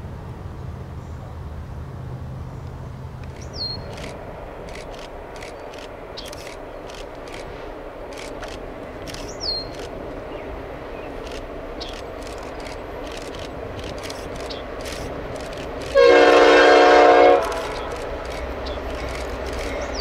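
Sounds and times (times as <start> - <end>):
low engine hum: 0.0 - 20.0
short high clicks: 3.2 - 10.0, 11.2 - 16.1, 17.4 - 20.0.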